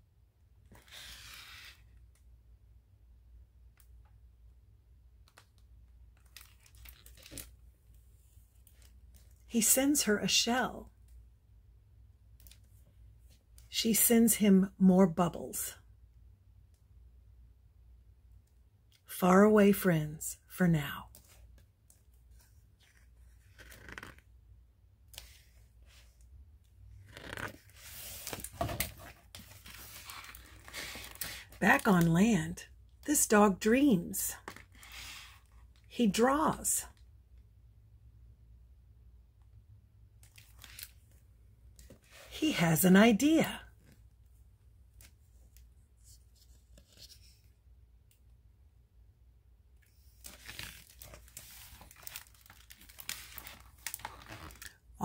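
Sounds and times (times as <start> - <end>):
book pages turning: 0.7 - 2.1, 22.3 - 24.3, 26.9 - 31.9, 40.2 - 41.2, 44.9 - 47.5, 49.9 - 54.8.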